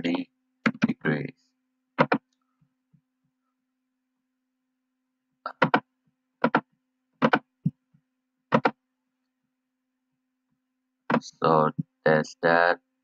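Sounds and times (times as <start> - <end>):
faint electrical hum: 0.0 - 13.0
computer mouse clicks: 2.0 - 2.4.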